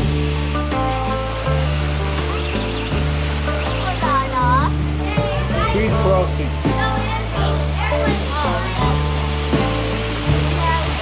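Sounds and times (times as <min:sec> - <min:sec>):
background music with bass chords: 0:00.0 - 0:11.0.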